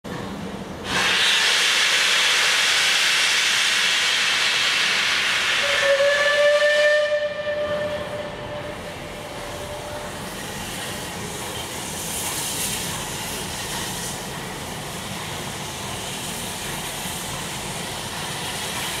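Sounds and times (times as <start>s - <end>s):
loud hiss of steam: 0.8s - 19.0s
steam whistle: 5.4s - 10.2s.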